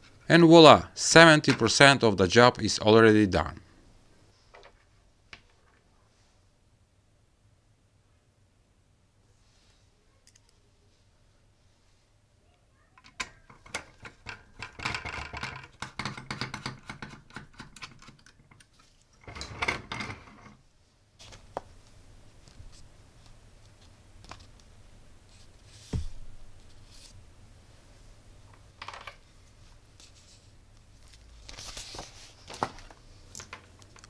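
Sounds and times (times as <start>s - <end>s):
single thump: 25.9s - 26.5s.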